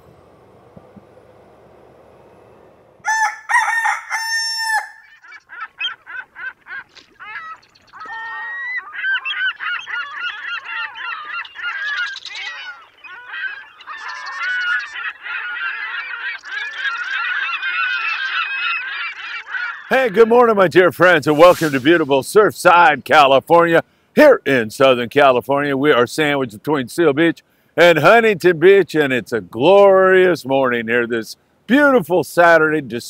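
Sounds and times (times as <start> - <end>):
birds calling: 0.0 - 24.2.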